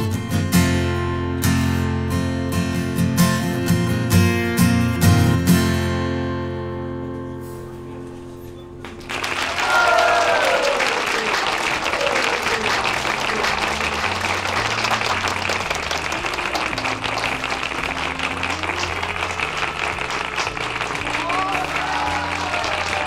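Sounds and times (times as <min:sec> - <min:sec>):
audience clapping and cheering: 0:08.8 - 0:23.0
whoops: 0:09.3 - 0:13.8, 0:21.0 - 0:23.0.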